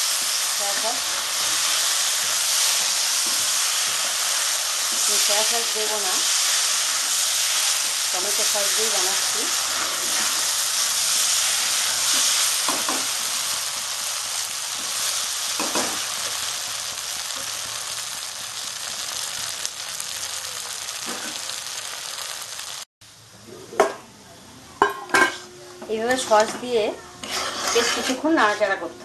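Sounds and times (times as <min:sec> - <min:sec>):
food sizzling in frying pan: 0:00.0 - 0:22.9
spatula stirring: 0:27.2 - 0:28.8.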